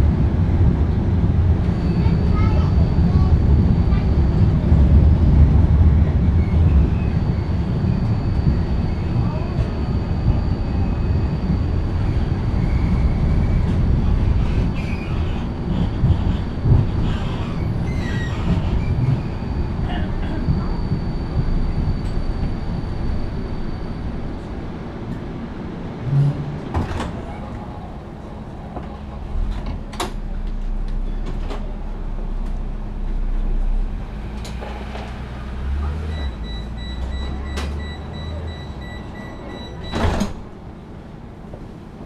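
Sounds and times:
tram interior rumble: 0:00.0 - 0:42.0
sliding doors thudding shut: 0:26.6 - 0:27.3, 0:39.9 - 0:40.5
rapid pulsed warning beeps: 0:36.1 - 0:40.1.

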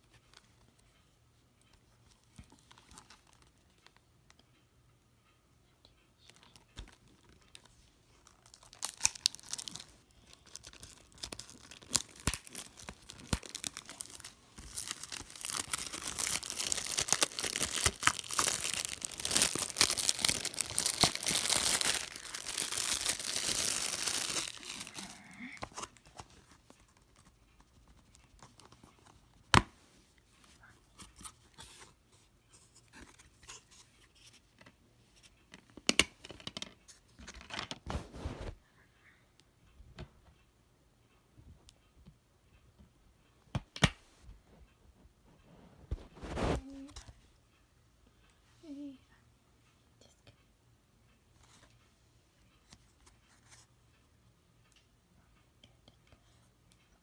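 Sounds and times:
plastic wrap tearing and crinkling: 0:08.2 - 0:26.0.

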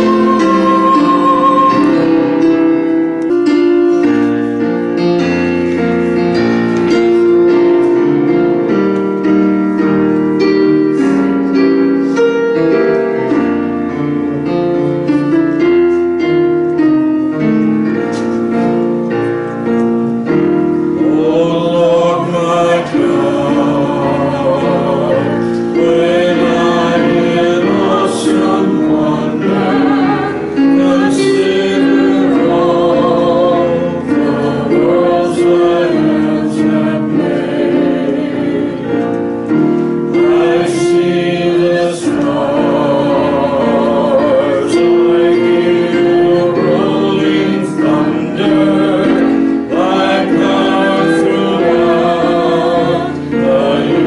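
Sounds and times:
person singing wavering melody: 0:00.0 - 0:02.8
electronic keyboard piano chords: 0:00.0 - 0:54.0.

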